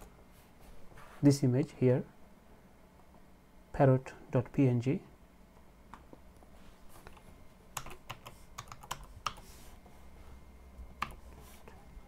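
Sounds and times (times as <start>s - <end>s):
computer keyboard typing: 7.8s - 9.4s, 11.0s - 11.2s.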